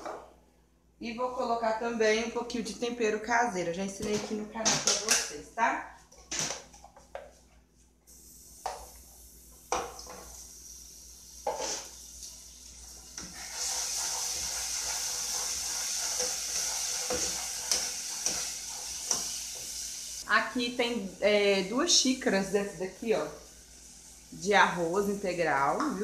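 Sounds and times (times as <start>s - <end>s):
seasoning sizzling in oil: 8.1s - 26.0s.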